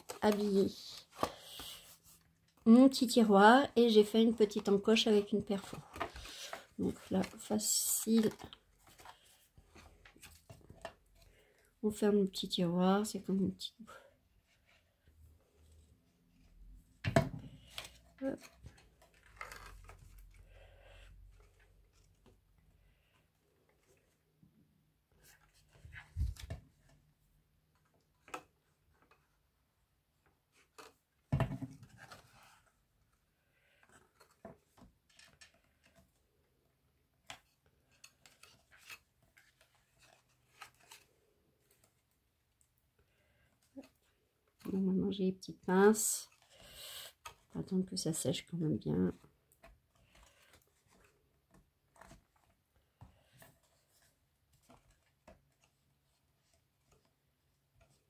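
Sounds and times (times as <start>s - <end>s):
cardstock rustling and tapping: 0.0s - 2.6s, 3.8s - 11.3s
paper rustling: 0.0s - 2.6s, 4.0s - 11.5s, 37.3s - 42.2s, 49.2s - 58.0s.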